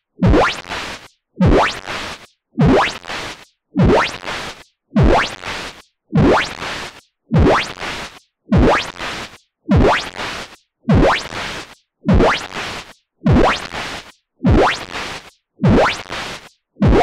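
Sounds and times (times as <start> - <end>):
kick drum thump: 0.2 - 0.4, 2.6 - 2.8, 5.0 - 5.2, 6.2 - 6.4, 7.3 - 7.6, 8.5 - 8.7, 12.1 - 12.3, 13.3 - 13.5, 14.5 - 14.7, 15.6 - 15.8.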